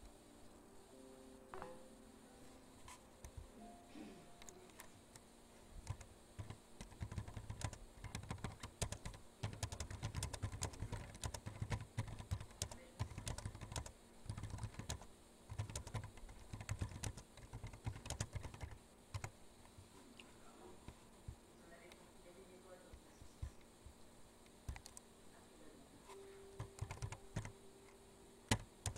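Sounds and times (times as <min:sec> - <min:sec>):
typing on keyboard: 0:05.8 - 0:19.3, 0:24.7 - 0:25.0, 0:26.6 - 0:27.6, 0:28.5 - 0:28.9.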